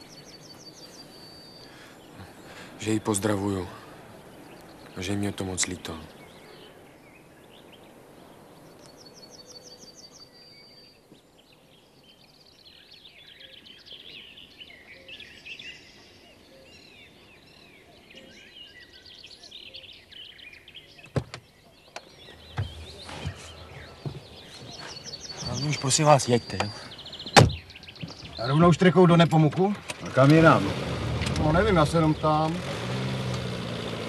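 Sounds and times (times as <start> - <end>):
small birds chirping: 0.0 - 34.0
car door knocks and thud: 21.0 - 21.5, 22.4 - 24.8, 27.3 - 28.3.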